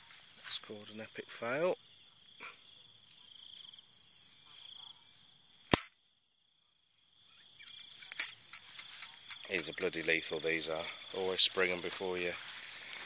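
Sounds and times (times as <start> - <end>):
insects trilling: 0.0 - 13.0
rat trap snapping shut: 5.7 - 6.0, 7.7 - 10.0.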